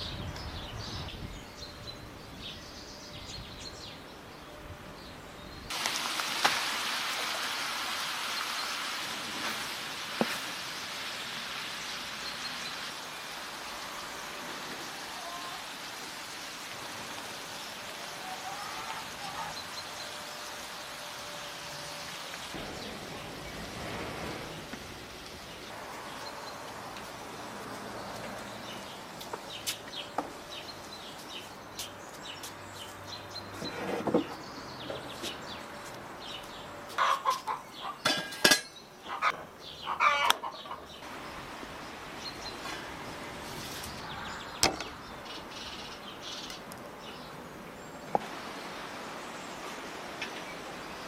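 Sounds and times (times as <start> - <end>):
meat sizzling in a pan: 5.7 - 12.1
hen clucking and cackling: 18.2 - 19.7, 36.9 - 38.0, 39.0 - 41.0.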